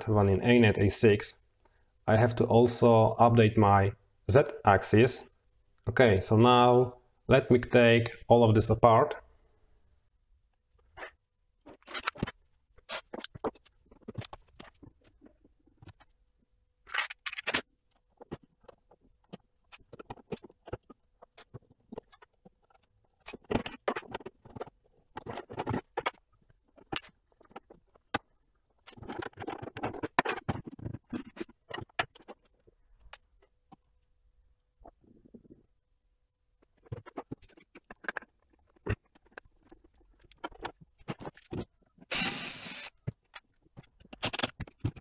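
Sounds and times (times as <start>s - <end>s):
clicks taps and rattles of parts: 16.9s - 34.0s, 43.0s - 45.0s.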